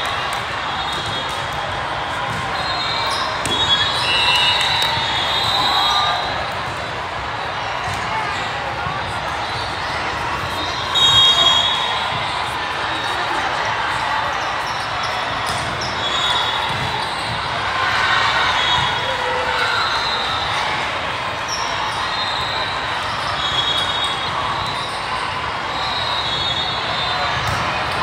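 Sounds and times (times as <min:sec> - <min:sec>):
volleyballs hit and bouncing: 0:00.0 - 0:12.6, 0:14.7 - 0:19.6, 0:27.2 - 0:28.0
crowd chatter: 0:00.0 - 0:28.0
referee whistle blasts: 0:00.7 - 0:06.4, 0:10.6 - 0:12.4, 0:15.5 - 0:17.2, 0:18.4 - 0:20.7, 0:21.5 - 0:25.0, 0:25.6 - 0:27.6.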